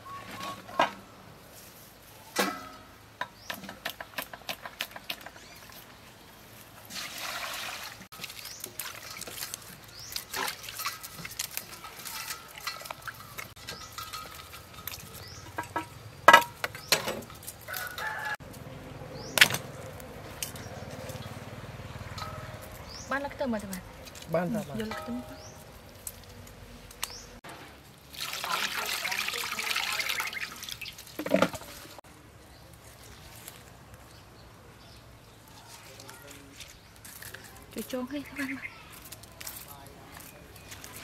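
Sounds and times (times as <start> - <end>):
water splashing in steel bowl: 6.9 - 15.8, 28.0 - 32.0
rooster crowing: 17.6 - 18.5.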